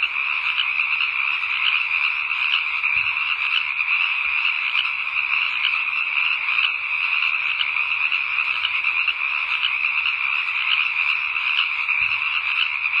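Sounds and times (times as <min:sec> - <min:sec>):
chorus of frogs trilling: 0:00.0 - 0:13.0.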